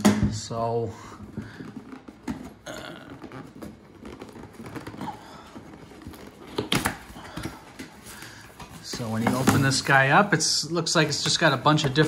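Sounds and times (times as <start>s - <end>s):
cardboard box being opened: 1.7s - 10.1s
cardboard snaps: 6.4s - 7.9s.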